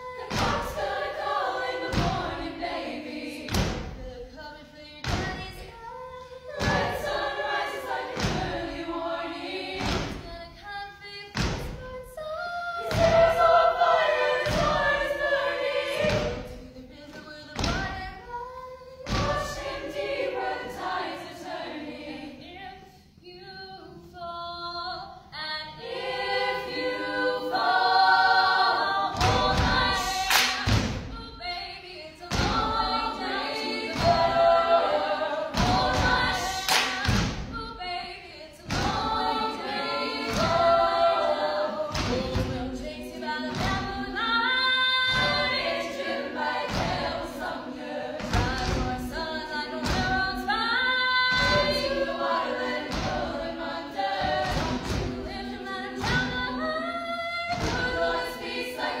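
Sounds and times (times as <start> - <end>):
women singing a cappella: 0.0 - 59.0
body percussion thumping: 0.3 - 2.5, 3.5 - 4.2, 5.0 - 5.8, 6.6 - 8.9, 9.7 - 10.5, 11.3 - 12.0, 12.8 - 16.7, 17.6 - 18.2, 19.1 - 20.0, 29.1 - 31.4, 32.3 - 34.6, 35.5 - 37.9, 38.6 - 41.2, 41.9 - 42.9, 43.5 - 44.2, 45.1 - 47.5, 48.2 - 49.2, 49.8 - 50.5, 51.3 - 56.7, 57.5 - 58.5.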